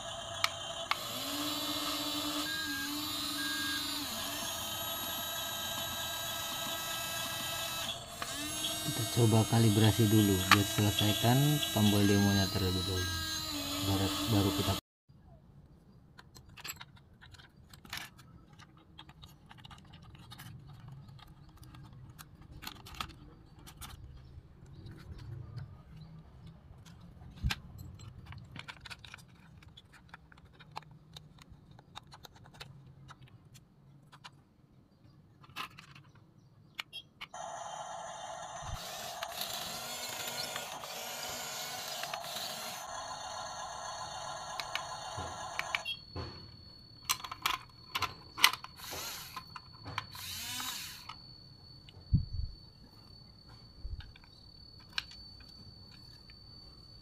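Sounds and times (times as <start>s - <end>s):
mechanical running sound: 0.0s - 14.8s, 37.4s - 52.6s
plastic toy gears ratcheting: 0.0s - 14.8s, 16.4s - 24.4s, 26.9s - 33.3s, 38.4s - 45.9s, 47.0s - 51.2s.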